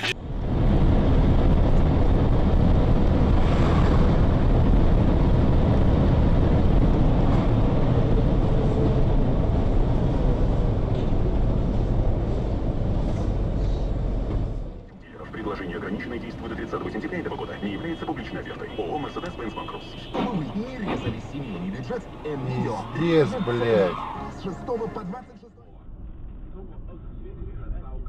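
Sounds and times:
vehicle engine and road rumble: 0.0s - 28.0s.

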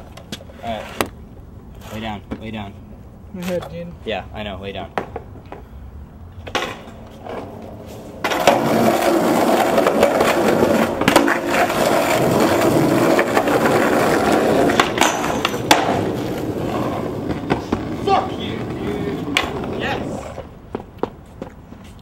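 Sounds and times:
skateboard rolling on concrete: 0.0s - 22.0s
skateboard clacks: 8.2s - 22.0s.

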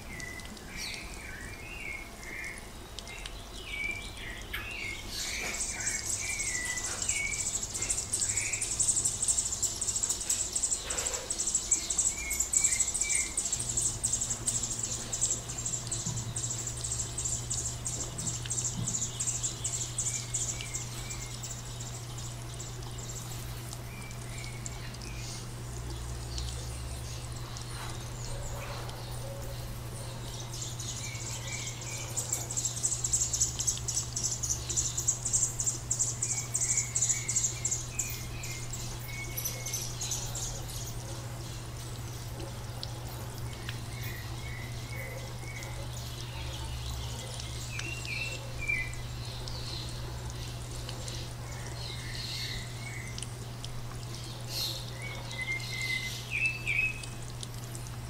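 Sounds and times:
birds chirping: 0.0s - 58.0s
steady low hum: 0.0s - 58.0s.

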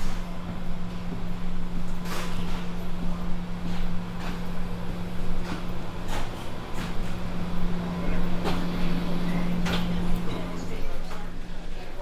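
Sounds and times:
steady low hum: 0.0s - 12.0s
footsteps walking: 3.6s - 8.9s.

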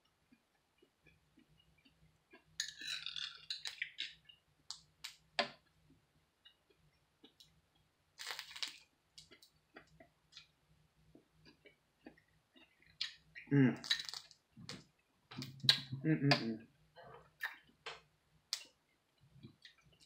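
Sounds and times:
soft chewing: 0.0s - 4.9s, 5.9s - 17.8s
fork scraping glass bowl: 2.6s - 3.5s.

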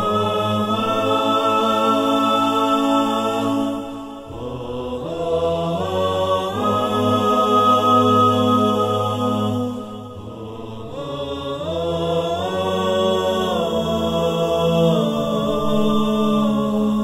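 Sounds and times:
wordless chant-like voices: 0.0s - 17.0s.

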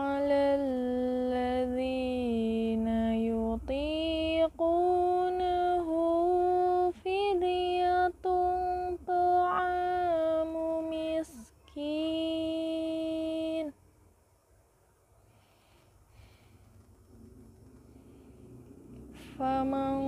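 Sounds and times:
woman reciting melodically: 0.0s - 13.8s, 19.2s - 20.0s.

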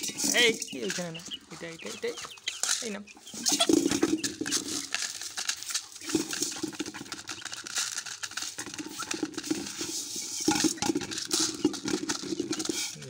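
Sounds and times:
chickens clucking softly: 0.2s - 4.7s.

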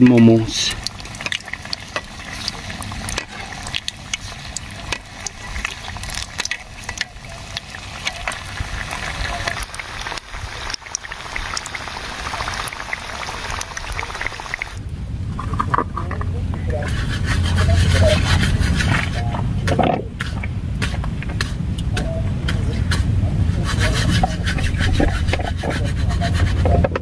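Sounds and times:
food sizzling in oil: 0.0s - 14.8s.

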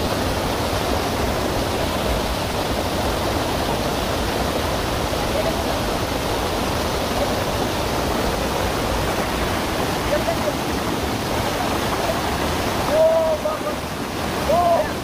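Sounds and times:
waterfall rushing over rock: 0.0s - 15.0s.

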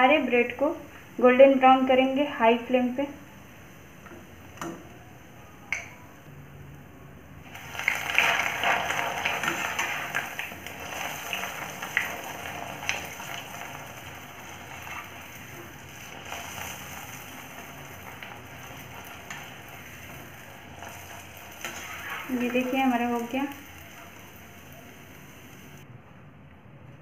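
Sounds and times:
bread sizzling in hot oil: 7.4s - 25.8s.

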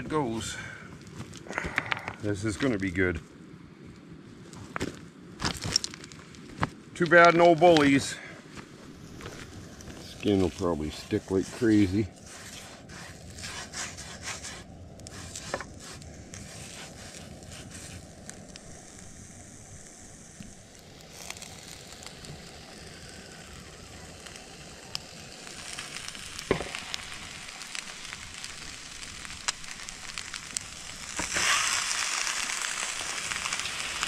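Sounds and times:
fish sizzling in a pan: 10.2s - 34.0s.

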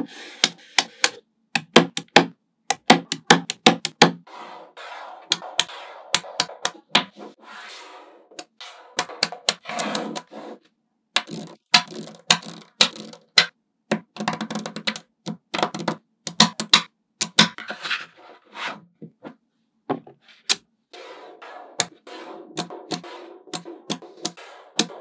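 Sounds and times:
magnetic balls clicking together: 11.2s - 17.6s, 22.6s - 25.0s.

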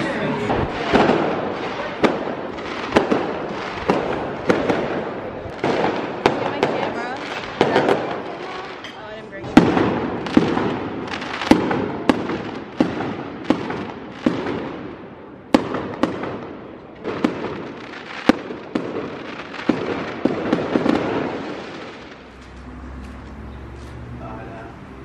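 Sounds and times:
fireworks bangs echoing: 0.0s - 22.4s
fireworks crackling: 0.0s - 24.0s.

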